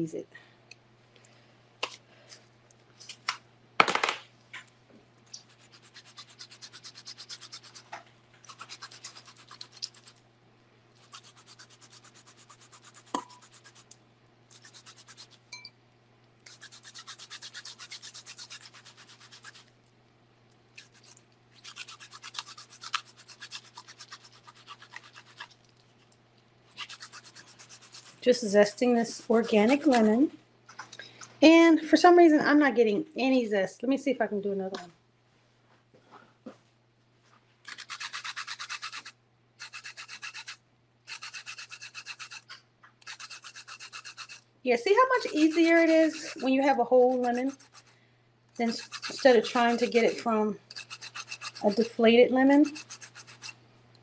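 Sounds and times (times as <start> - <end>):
lemon rind scraping on grater: 5.3 - 10.2, 11.0 - 15.4, 16.4 - 19.7, 20.8 - 25.5, 26.7 - 30.3, 37.6 - 47.9, 48.6 - 53.6.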